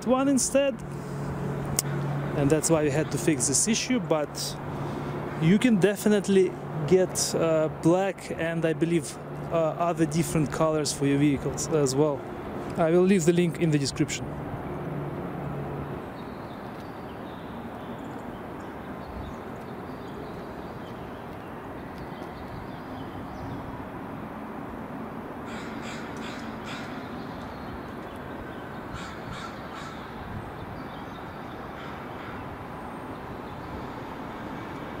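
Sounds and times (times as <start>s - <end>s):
outdoor background noise: 0.0s - 35.0s
bird cawing: 25.4s - 27.6s, 28.4s - 30.3s, 31.6s - 32.6s.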